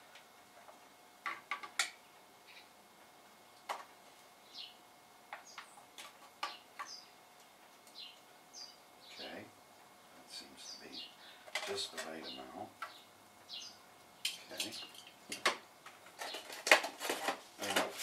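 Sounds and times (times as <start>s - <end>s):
bird chirping: 4.4s - 4.8s, 5.4s - 5.8s, 6.4s - 7.2s, 7.9s - 9.4s, 10.4s - 15.0s.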